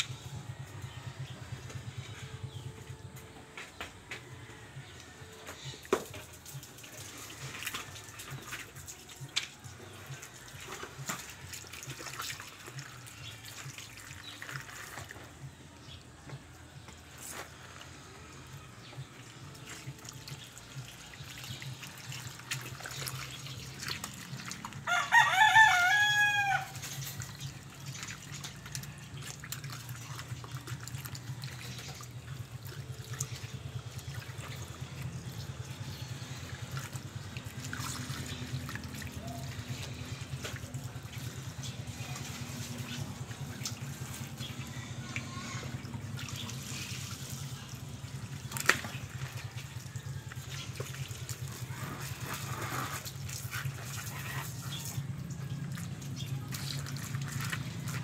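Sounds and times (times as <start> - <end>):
rooster crowing: 24.8 - 26.8.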